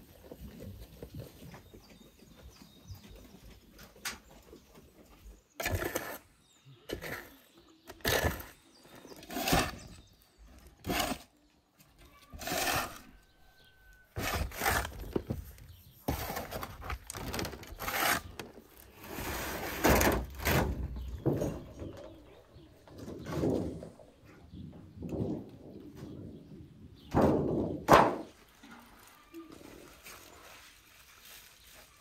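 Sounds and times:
shovel scraping dirt: 0:05.6 - 0:06.3, 0:06.9 - 0:10.1, 0:10.8 - 0:11.3, 0:12.3 - 0:13.2, 0:14.1 - 0:15.1, 0:17.7 - 0:20.7.

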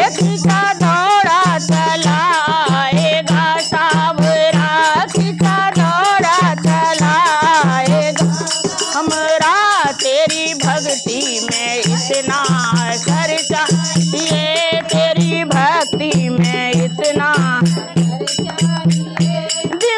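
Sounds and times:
hand drum beating: 0:00.0 - 0:19.9
women singing: 0:00.0 - 0:19.9
hand rattle jingling: 0:04.1 - 0:19.9.

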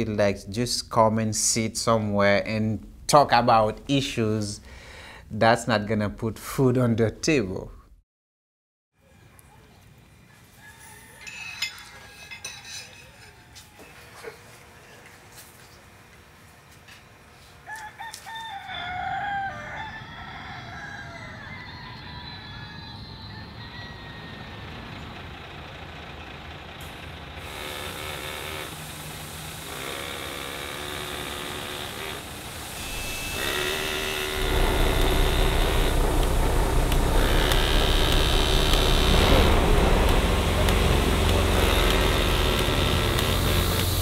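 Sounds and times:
diesel bus engines idling: 0:24.3 - 0:27.6, 0:28.7 - 0:29.7, 0:34.4 - 0:44.0
loud engine rumble: 0:24.5 - 0:44.0.

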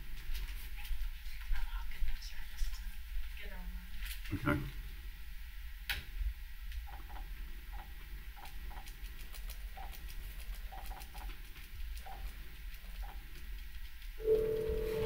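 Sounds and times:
low room hum: 0:00.0 - 0:15.0
faint short beeps: 0:14.2 - 0:15.0.

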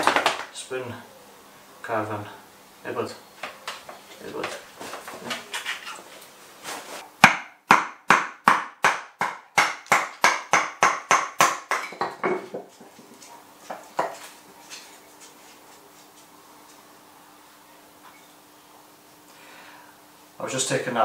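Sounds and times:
knocks of wood on wood: 0:00.0 - 0:00.5
wooden mallet striking knife: 0:07.2 - 0:12.2.

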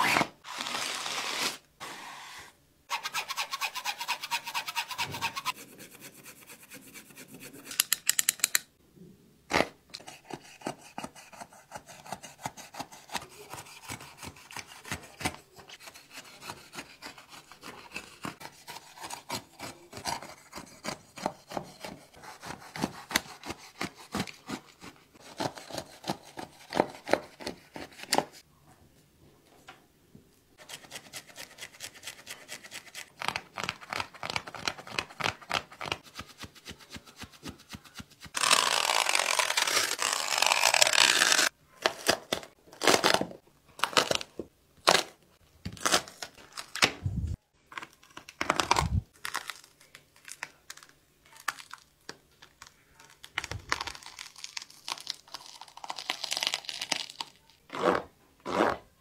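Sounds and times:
shoe material rubbing and scraping: 0:00.0 - 0:07.7, 0:57.7 - 0:58.9.

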